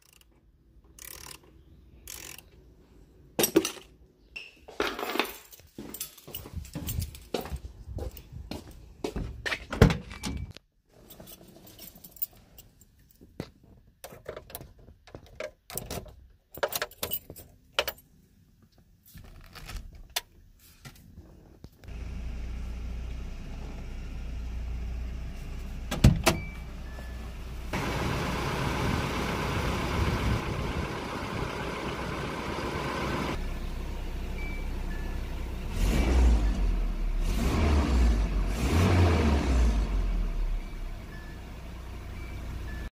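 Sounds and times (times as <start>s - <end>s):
clicks and jingles: 4.8s - 8.3s, 14.0s - 18.2s
car engine starting and running: 21.8s - 42.9s.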